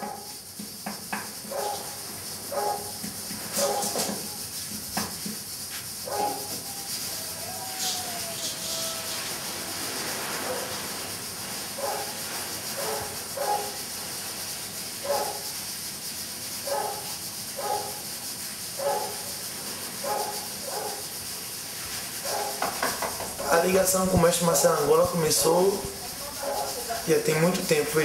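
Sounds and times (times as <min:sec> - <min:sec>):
dog barking: 0:00.0 - 0:00.3, 0:01.5 - 0:01.9, 0:02.5 - 0:03.0, 0:03.6 - 0:04.3, 0:06.0 - 0:06.6, 0:11.8 - 0:12.2, 0:12.8 - 0:13.8, 0:15.0 - 0:15.4, 0:16.6 - 0:18.0, 0:18.8 - 0:19.3, 0:20.0 - 0:21.0, 0:22.2 - 0:22.7, 0:23.4 - 0:23.8, 0:26.3 - 0:26.9
steady hiss: 0:00.0 - 0:28.0.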